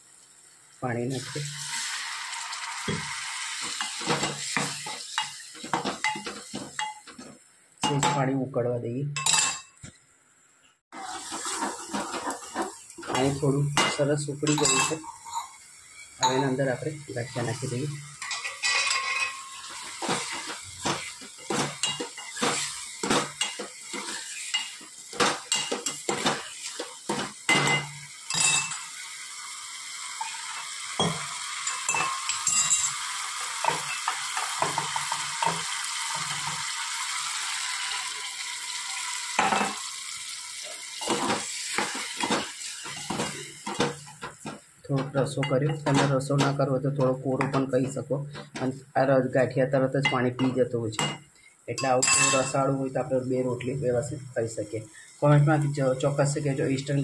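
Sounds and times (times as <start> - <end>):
gravy sizzling: 0.0 - 8.0, 10.4 - 57.0
spoon scraping metal pot: 14.5 - 15.6.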